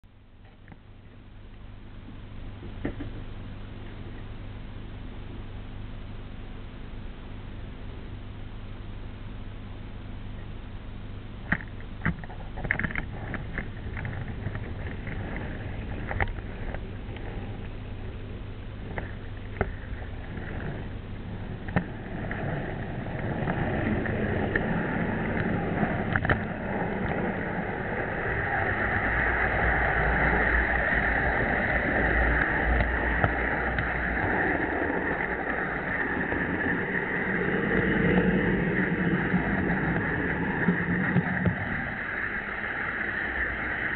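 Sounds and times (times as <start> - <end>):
rolling rumble: 0.0 - 43.9
model train motor hum: 11.4 - 43.9
wheels clicking over rails: 11.5 - 17.8, 18.8 - 43.9.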